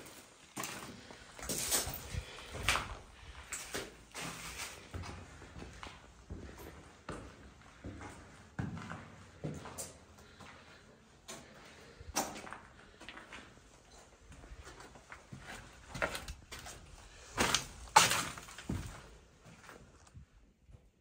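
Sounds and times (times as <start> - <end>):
footsteps crunching on debris: 0.0 - 7.2, 14.5 - 20.0.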